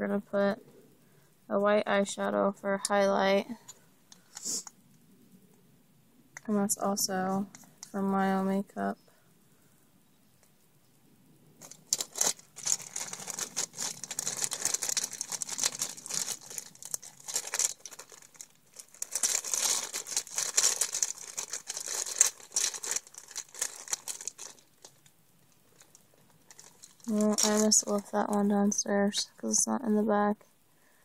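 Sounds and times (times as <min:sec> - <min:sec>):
plastic crinkling and rustling: 0:11.6 - 0:28.5.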